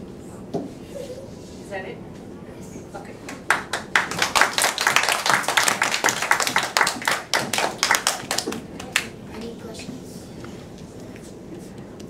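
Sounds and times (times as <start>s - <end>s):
children clapping: 3.3s - 9.2s.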